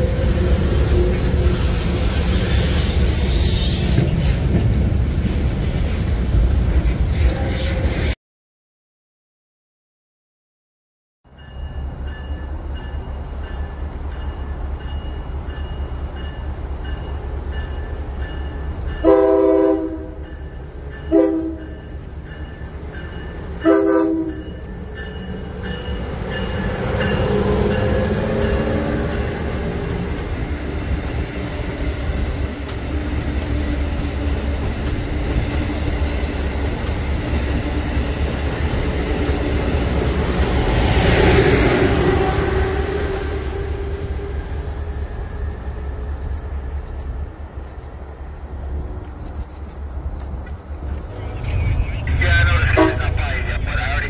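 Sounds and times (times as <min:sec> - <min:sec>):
train horn blasts: 0:00.0 - 0:02.1, 0:19.0 - 0:20.4, 0:21.0 - 0:21.8, 0:23.6 - 0:24.6, 0:41.9 - 0:44.4, 0:52.6 - 0:53.2
locomotive diesel engine rumble: 0:50.3 - 0:54.0.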